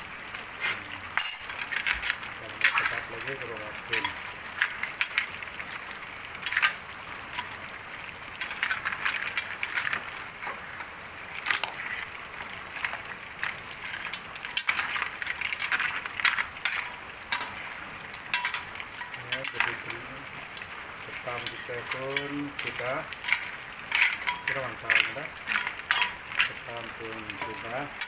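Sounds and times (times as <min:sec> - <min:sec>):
crabs sizzling in a wok: 0:00.0 - 0:28.0
metal spatula scraping a wok: 0:21.5 - 0:26.6.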